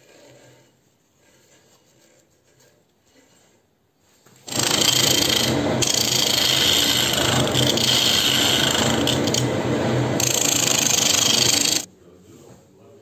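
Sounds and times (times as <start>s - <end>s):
gouge cutting wood on lathe: 4.5s - 11.9s
lathe motor hum: 4.5s - 11.9s.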